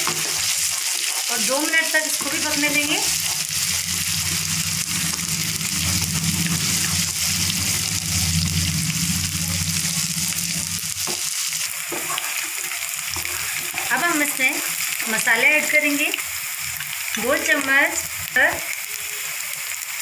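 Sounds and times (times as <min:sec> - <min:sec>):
wooden spatula stirring: 0:00.0 - 0:08.2
onions sizzling in hot oil: 0:00.0 - 0:20.0
steady low hum: 0:02.5 - 0:11.2.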